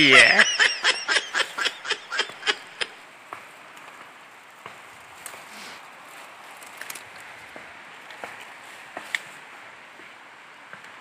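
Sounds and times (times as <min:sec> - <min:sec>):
person laughing: 0:00.0 - 0:03.0
rustles through ferns: 0:03.0 - 0:10.2.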